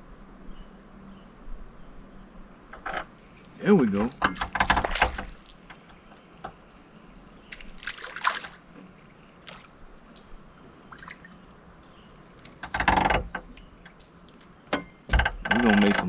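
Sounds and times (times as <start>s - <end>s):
fish splashing at water surface: 4.4s - 5.7s, 7.5s - 8.6s.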